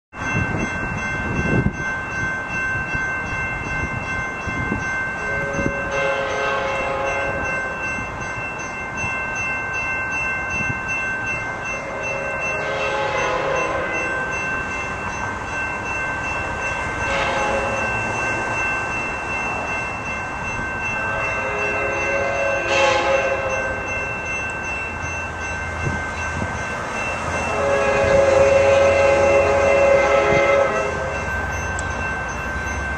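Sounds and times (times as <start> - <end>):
distant train horn blasts: 5.2 - 7.5, 11.8 - 14.1, 17.0 - 18.0, 21.0 - 23.9, 27.4 - 31.4.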